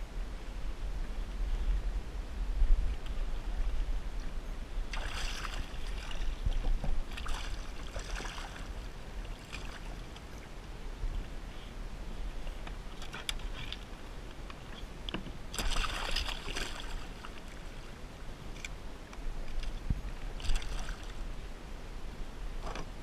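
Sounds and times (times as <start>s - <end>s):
water splashing beside kayak: 4.9s - 10.3s, 12.4s - 18.0s, 20.2s - 21.4s
small clicks of fishing tackle: 12.6s - 15.2s, 18.5s - 19.8s.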